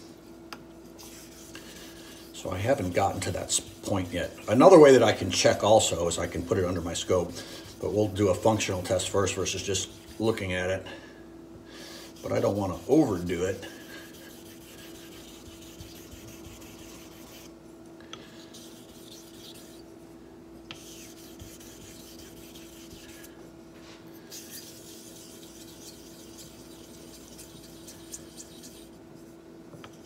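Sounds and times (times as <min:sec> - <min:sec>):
faint steady hum: 0:00.0 - 0:30.0
razor rasping on sharpening stone: 0:14.1 - 0:17.5, 0:20.7 - 0:23.2, 0:24.3 - 0:28.9.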